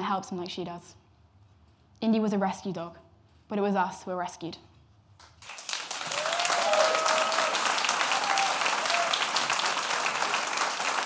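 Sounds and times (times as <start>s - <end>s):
audience applauding: 5.4s - 11.0s
short cheers: 5.9s - 10.3s.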